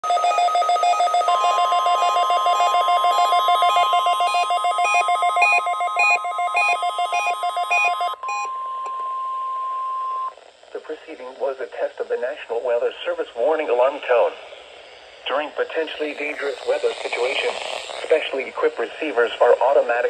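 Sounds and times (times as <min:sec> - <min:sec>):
rapid electronic alert beeping: 0:00.0 - 0:08.2
steady warning alarm tone: 0:00.0 - 0:10.3.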